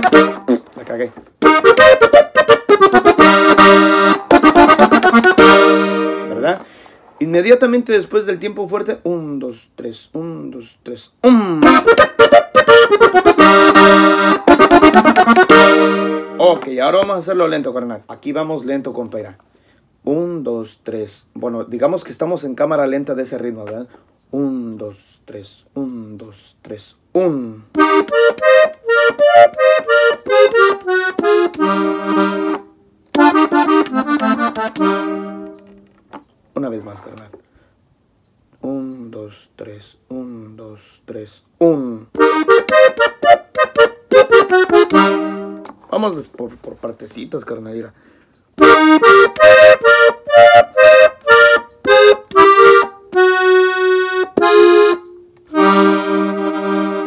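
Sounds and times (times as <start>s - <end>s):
button accordion playing: 0.0s - 6.7s, 11.6s - 17.3s, 27.7s - 35.8s, 42.1s - 45.8s, 48.6s - 57.0s.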